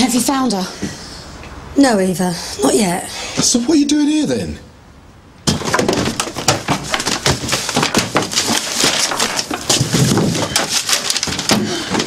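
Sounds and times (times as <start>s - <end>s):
files and books being shifted: 5.5s - 12.0s.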